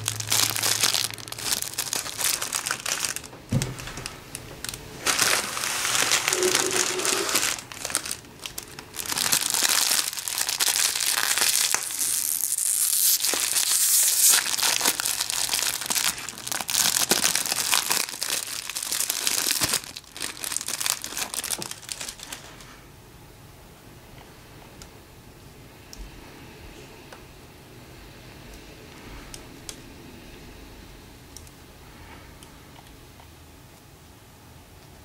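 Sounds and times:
plastic wrapper crinkling: 0:00.0 - 0:22.7.

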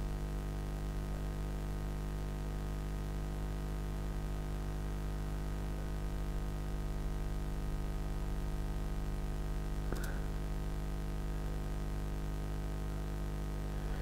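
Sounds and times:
low electrical hum: 0:00.0 - 0:14.0
mouse click: 0:09.9 - 0:10.2.

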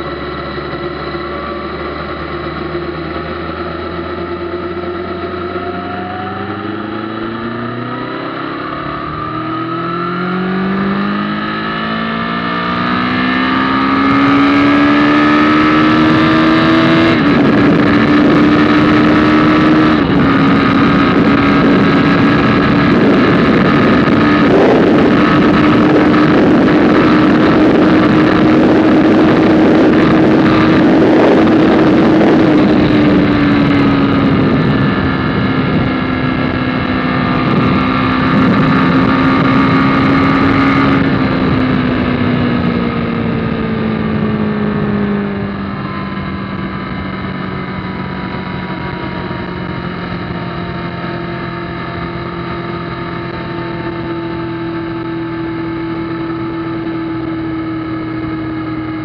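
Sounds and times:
motorcycle engine: 0:00.0 - 0:59.0
wind rushing: 0:04.7 - 0:51.0.

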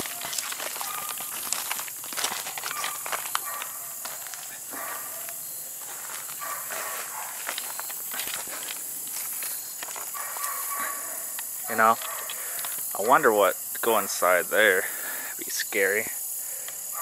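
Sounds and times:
footsteps on gravel: 0:00.0 - 0:13.2
steady high hiss: 0:00.0 - 0:17.0.

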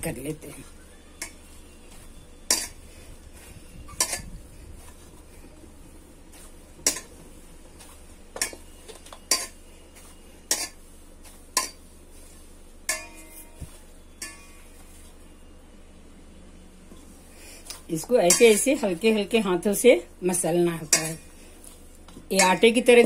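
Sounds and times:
metal bowl knocking and clinking: 0:12.9 - 0:13.4.

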